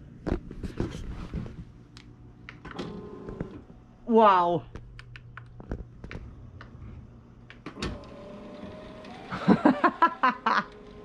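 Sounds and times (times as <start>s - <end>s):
person's voice: 4.0s - 4.7s
motorised curtain humming: 6.3s - 11.0s.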